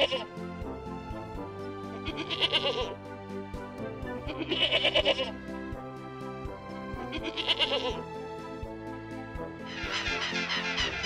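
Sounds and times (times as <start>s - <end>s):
goat bleating: 0.0s - 0.3s, 2.0s - 3.0s, 4.3s - 5.4s, 7.0s - 8.0s
background music with steady beat: 0.0s - 11.0s.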